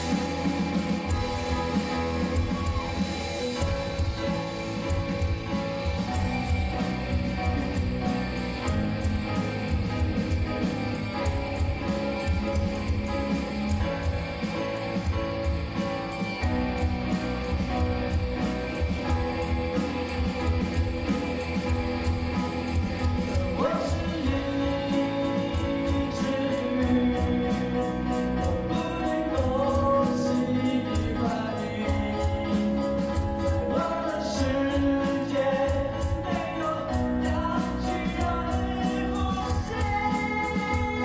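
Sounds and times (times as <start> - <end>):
pop-rock band playing: 0.0 - 41.0
person singing: 23.0 - 41.0.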